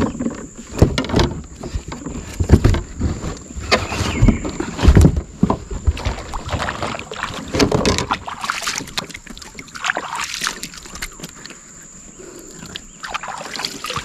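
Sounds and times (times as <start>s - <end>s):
thumps and knocks in kayak: 0.0s - 11.4s
hands splashing in water: 6.0s - 11.2s, 12.6s - 14.0s.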